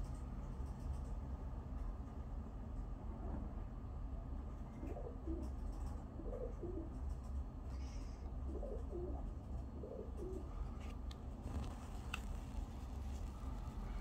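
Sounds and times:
steady low rumble: 0.0 - 14.0
pigeons cooing: 4.8 - 7.0, 7.8 - 10.6.

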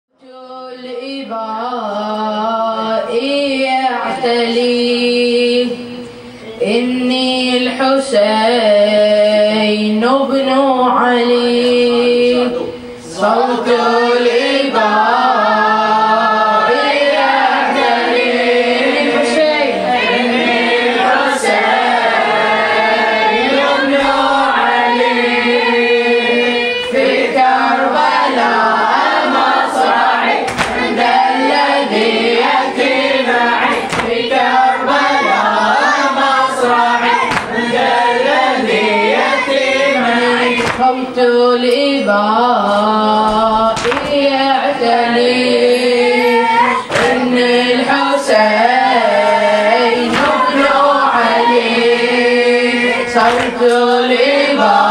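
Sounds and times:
boy chanting into microphone: 0.1 - 54.9
voices chanting in chorus: 0.2 - 54.9
sharp slaps: 30.4 - 30.9, 33.6 - 34.4, 37.2 - 37.6, 40.6 - 41.0, 43.2 - 44.3, 46.9 - 47.3, 50.0 - 50.8, 53.2 - 53.9.

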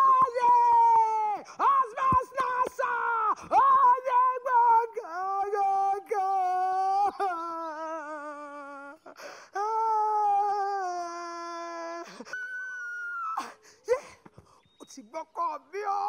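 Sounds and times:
woman wailing: 6.6 - 9.0, 9.6 - 14.2.

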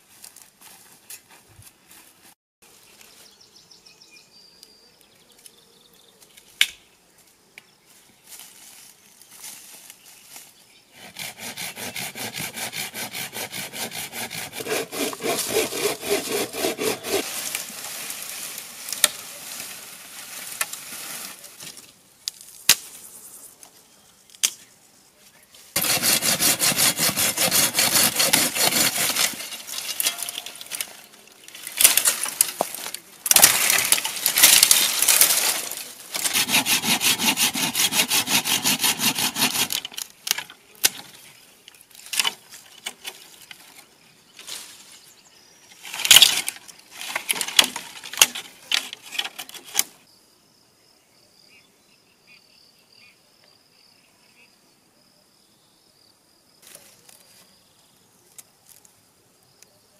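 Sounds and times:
branches rustling: 6.2 - 10.7, 13.8 - 50.0, 56.6 - 57.6
hand saw cutting branches: 11.0 - 19.4, 25.8 - 41.2, 45.8 - 50.0
dry wood cracking: 14.6 - 20.9, 26.8 - 37.9, 39.3 - 43.9, 45.8 - 50.0.

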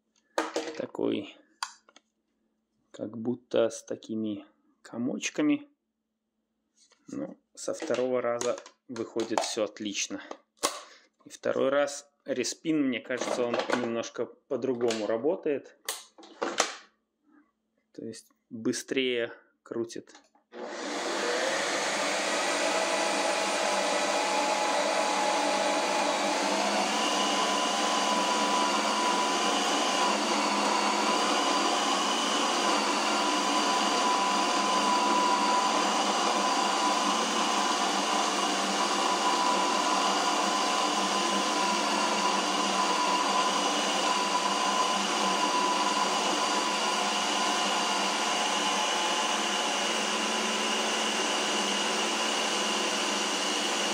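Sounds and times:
ice cream maker motor whine: 20.6 - 53.9.

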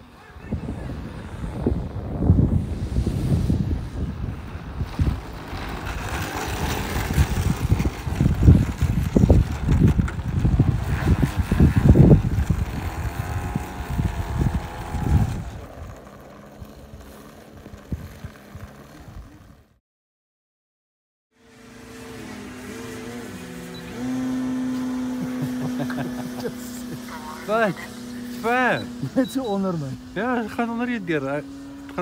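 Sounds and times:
wind buffeting microphone: 0.0 - 19.7
model plane engine idling: 3.6 - 19.7, 21.4 - 32.0.

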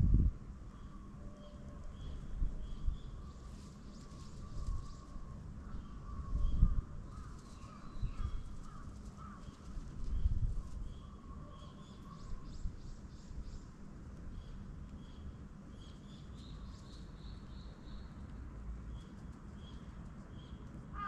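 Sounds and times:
small birds chirping: 5.8 - 20.8.

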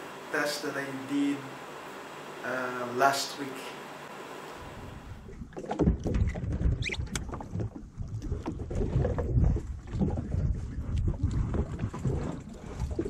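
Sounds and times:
wind rumbling on microphone: 4.7 - 13.0
water washing against boat hull: 5.2 - 13.0.

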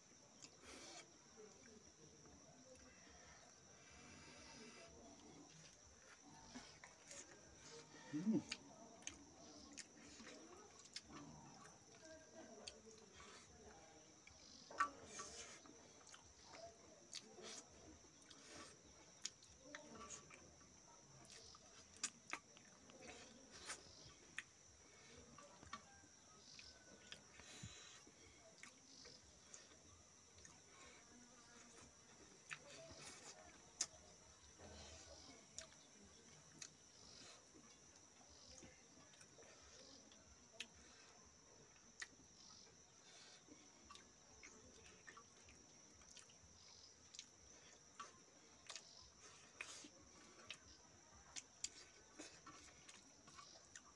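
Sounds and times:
faint insect drone: 0.0 - 53.9
soft chewing: 0.0 - 53.9
eating clicks and smacks: 14.2 - 24.6, 43.4 - 53.9.

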